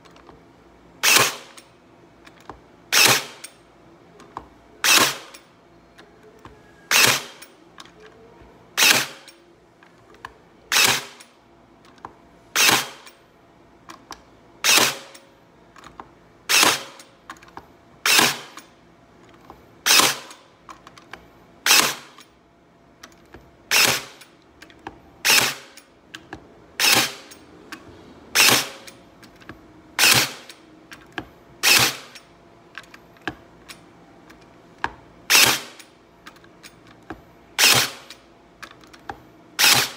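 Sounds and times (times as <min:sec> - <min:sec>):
stapler firing into wood: 0:01.0 - 0:01.6, 0:02.9 - 0:03.5, 0:04.8 - 0:05.4, 0:06.9 - 0:07.5, 0:08.8 - 0:09.4, 0:10.7 - 0:11.3, 0:12.6 - 0:13.2, 0:14.6 - 0:15.2, 0:16.5 - 0:17.0, 0:18.0 - 0:18.7, 0:19.8 - 0:20.4, 0:21.7 - 0:22.2, 0:23.7 - 0:24.3, 0:25.2 - 0:25.8, 0:26.8 - 0:27.4, 0:28.4 - 0:29.0, 0:30.0 - 0:30.6, 0:31.6 - 0:32.2, 0:35.3 - 0:35.9, 0:37.6 - 0:38.2, 0:39.6 - 0:39.9.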